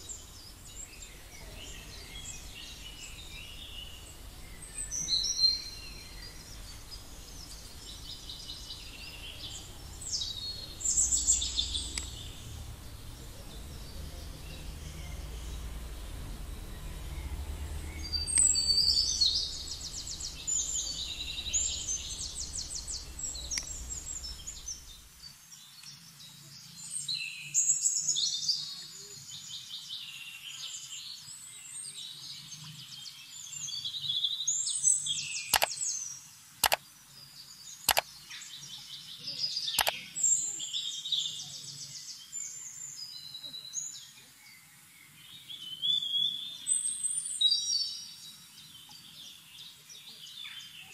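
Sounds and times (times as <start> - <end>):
low hum: 0.0 - 25.3
songbirds singing: 0.0 - 50.9
sharp clicks: 11.4 - 12.7, 18.2 - 25.1, 35.5 - 35.8, 37.9 - 38.1, 39.8 - 40.0.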